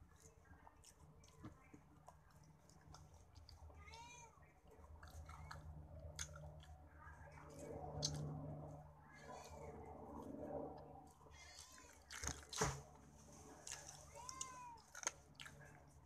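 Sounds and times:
person chewing with mouth clicks: 0:04.9 - 0:06.8
cat meowing: 0:14.1 - 0:14.9.

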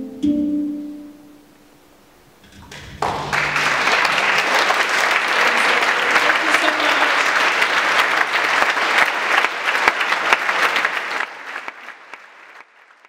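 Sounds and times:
audience applause: 0:02.6 - 0:13.0.

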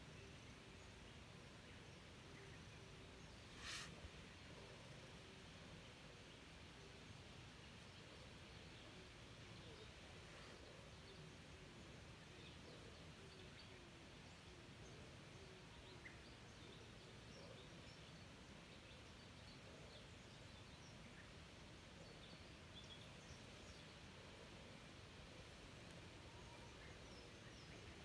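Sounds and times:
faint high bird chirps: 0:25.9 - 0:28.0.

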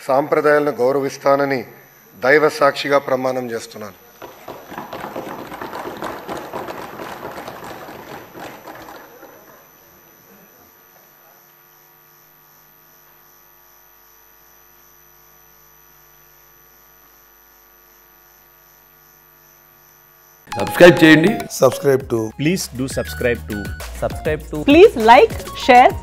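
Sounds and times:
faint electrical hum: 0:00.0 - 0:04.9, 0:07.9 - 0:21.7
applause: 0:04.2 - 0:09.9.

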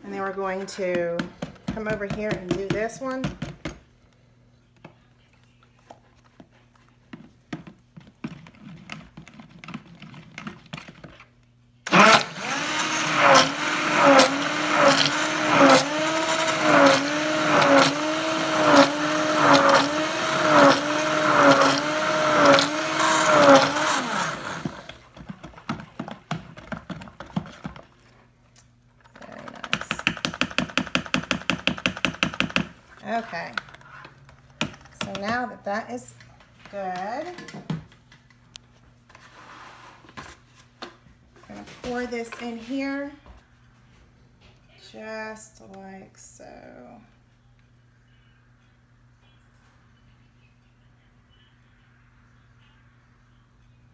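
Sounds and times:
immersion blender mixing: 0:11.9 - 0:28.0.

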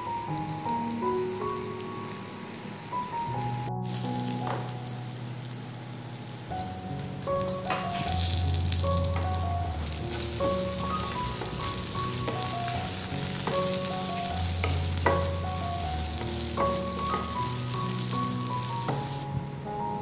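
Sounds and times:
sausage sizzling in a pan: 0:00.0 - 0:19.4
background music with bass: 0:03.2 - 0:20.0
wooden spatula knocking pan: 0:09.1 - 0:13.9, 0:14.5 - 0:15.4, 0:16.2 - 0:17.6.

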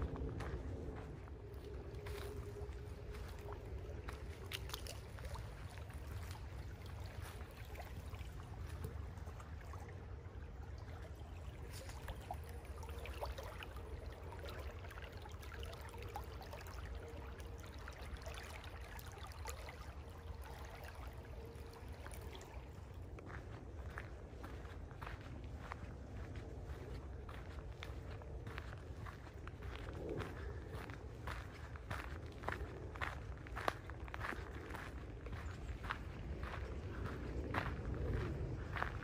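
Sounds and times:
low rumble: 0:00.0 - 0:06.8
creek babbling: 0:00.0 - 0:39.0.

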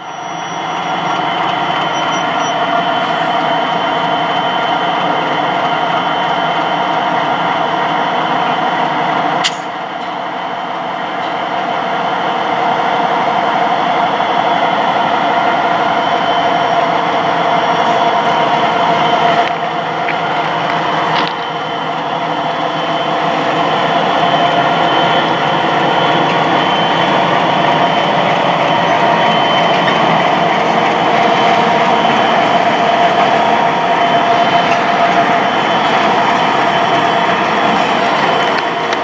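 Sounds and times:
locomotive diesel engine running: 0:00.0 - 0:39.0
sharp click: 0:09.4 - 0:10.2.

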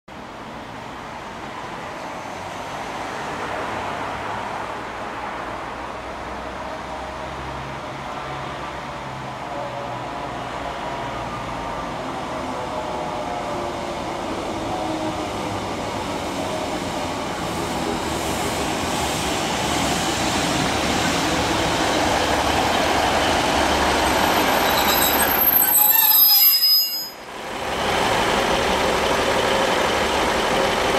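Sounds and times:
train engine and wheel noise: 0:00.1 - 0:30.9
high brake squeal: 0:23.8 - 0:27.3.

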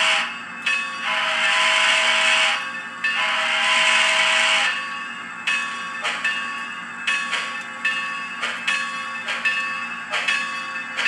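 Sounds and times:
steam whistle through small speaker: 0:01.1 - 0:02.6, 0:03.2 - 0:04.7.

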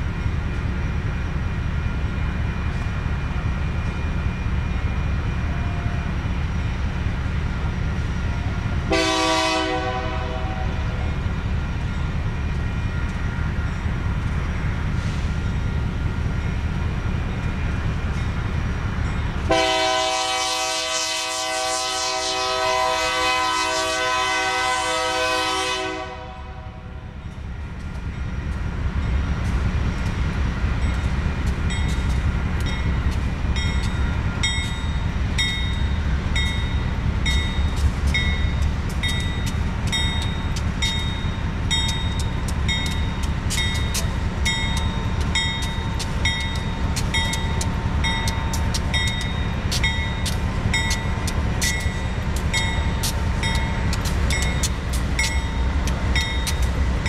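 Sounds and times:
diesel locomotives rumbling: 0:00.0 - 0:57.0
locomotive air horn chord: 0:08.9 - 0:10.9, 0:19.5 - 0:26.9.

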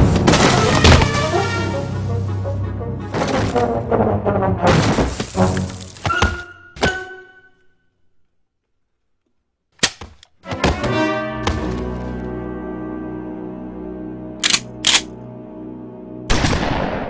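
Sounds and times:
orchestral film score hits: 0:00.0 - 0:07.2.

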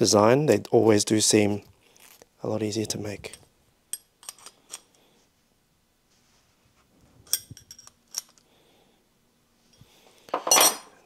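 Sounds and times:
metallic clicks of hose fitting: 0:03.3 - 0:05.0.

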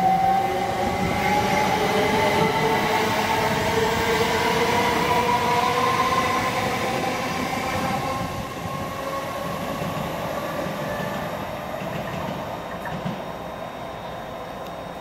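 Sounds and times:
electric train whine: 0:00.0 - 0:15.0.

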